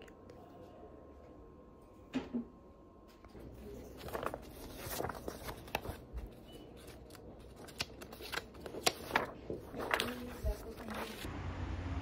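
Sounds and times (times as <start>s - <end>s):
paper rustling and crinkling: 3.2s - 11.3s.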